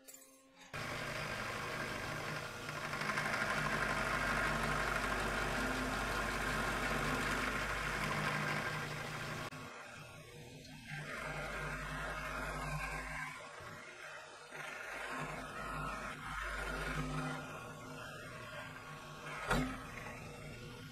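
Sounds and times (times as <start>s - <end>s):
end mill cutting aluminum: 0.7s - 9.5s
motor hum: 0.7s - 20.9s.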